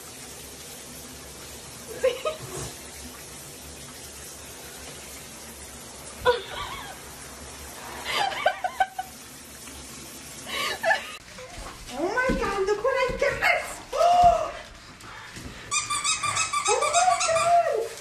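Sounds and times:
shower spray into bathtub: 0.0s - 14.7s
person laughing: 1.9s - 2.7s, 6.2s - 7.0s, 8.1s - 9.1s, 10.5s - 11.2s.

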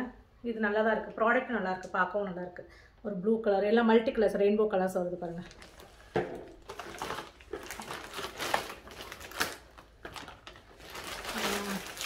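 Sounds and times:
plastic packaging crinkling: 5.4s - 12.0s.

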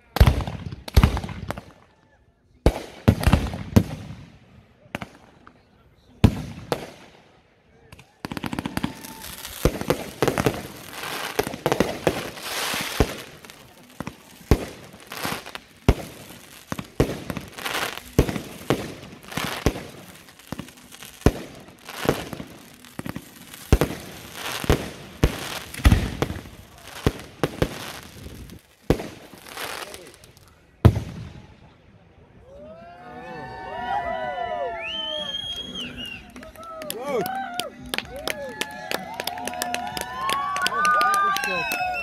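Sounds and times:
fireworks crackling and hissing: 0.0s - 1.9s, 2.6s - 31.8s
fireworks bangs: 0.2s - 1.8s, 2.6s - 5.5s, 8.2s - 31.5s.

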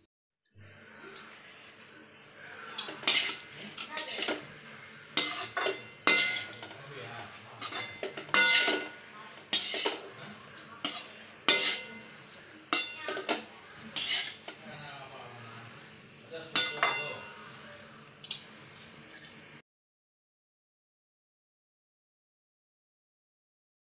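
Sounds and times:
metal spatula scraping a pan: 2.6s - 14.6s, 16.5s - 17.4s.

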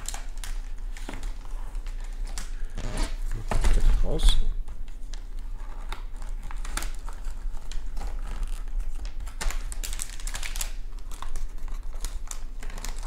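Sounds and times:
plastic bag crinkling: 5.0s - 13.0s.

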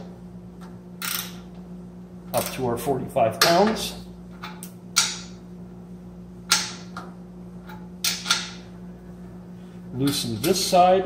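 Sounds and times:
steady low hum: 0.0s - 11.0s
torque wrench clicking: 1.0s - 1.5s.

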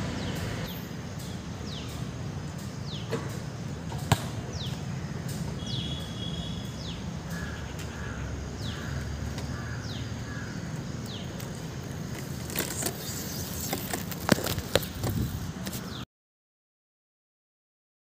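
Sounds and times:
bird chirping: 0.1s - 3.7s, 4.4s - 11.6s, 12.4s - 14.8s.

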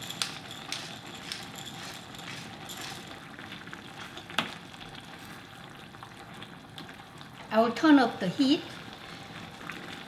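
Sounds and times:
wooden spoon stirring: 0.0s - 4.6s
food sizzling in a pan: 0.0s - 10.0s.

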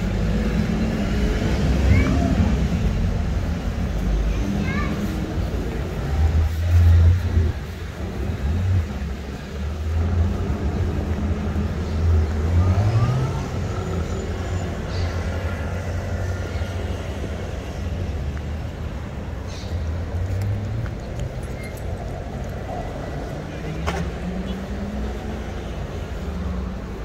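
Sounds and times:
traffic engines humming: 0.0s - 27.0s.

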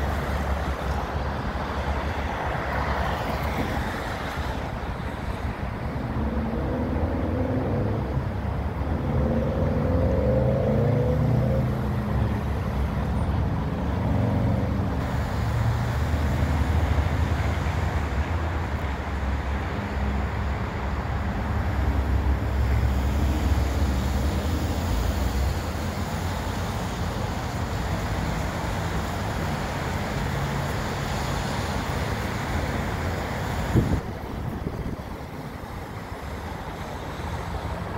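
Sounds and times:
car engines: 0.0s - 37.9s
low traffic rumble: 0.0s - 37.9s
tyres on wet road: 0.0s - 37.9s.

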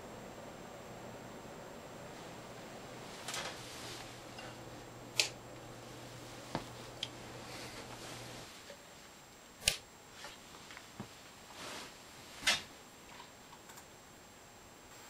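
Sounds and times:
low hum: 0.0s - 9.6s
faint room hiss: 0.0s - 15.0s.

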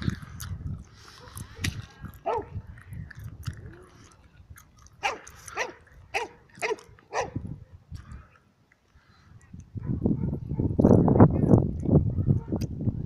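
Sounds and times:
dog barking: 2.2s - 2.6s, 5.0s - 7.4s, 9.8s - 10.8s, 12.1s - 12.6s.

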